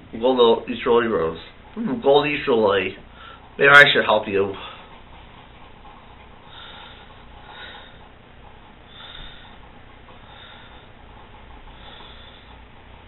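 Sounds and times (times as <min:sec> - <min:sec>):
low hum and hiss: 0:00.0 - 0:13.0
person breathing: 0:03.1 - 0:03.5, 0:06.4 - 0:08.1, 0:08.9 - 0:11.0, 0:11.7 - 0:12.6.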